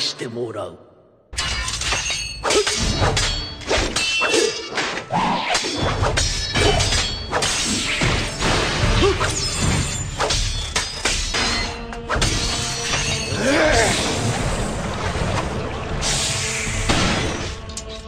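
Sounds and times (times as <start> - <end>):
sword blades clashing: 1.4 - 13.9.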